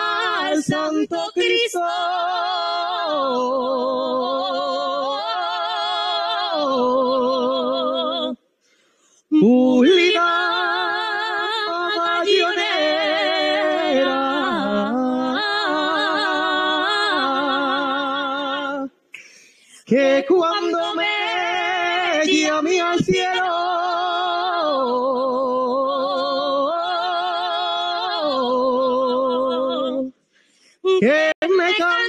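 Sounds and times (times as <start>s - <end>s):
man singing unaccompanied: 12.0s - 15.5s, 19.9s - 23.6s.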